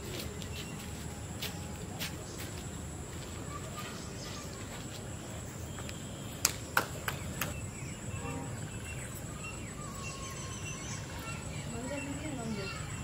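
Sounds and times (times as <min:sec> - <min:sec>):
insect trill: 0:07.6 - 0:13.0.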